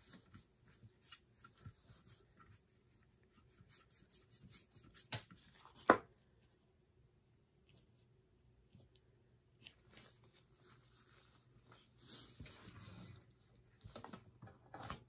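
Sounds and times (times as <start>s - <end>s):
sponge brush dabbing on metal tray: 0.0s - 5.7s.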